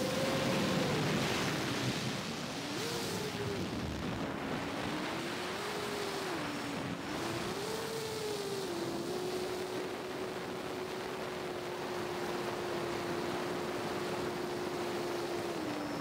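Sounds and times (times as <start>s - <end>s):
drone motors whining: 0.0s - 1.7s
wind and propeller rush: 0.0s - 16.0s.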